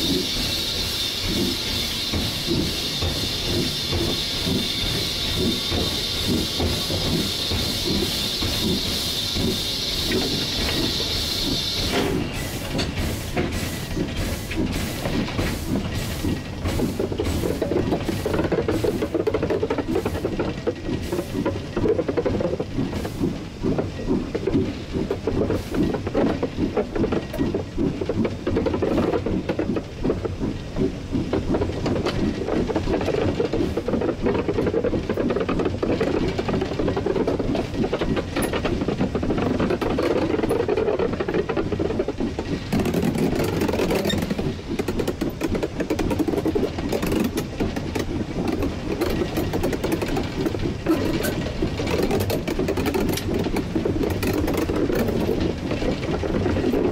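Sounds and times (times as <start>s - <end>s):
steam hiss: 0.0s - 21.7s, 22.8s - 26.9s
steam locomotive running gear clatter: 0.0s - 56.9s.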